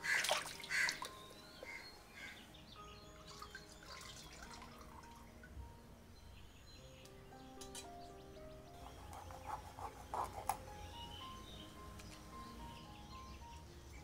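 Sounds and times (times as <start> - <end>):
water splashing: 0.0 - 1.1
water dripping and trickling: 0.0 - 1.8, 3.2 - 5.6.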